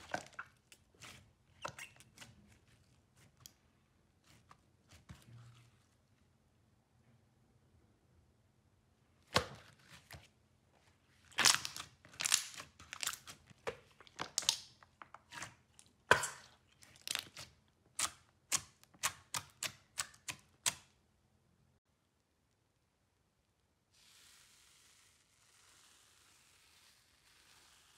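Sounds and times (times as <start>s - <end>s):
slime squishing with wet pops: 0.0s - 3.4s, 11.3s - 20.9s.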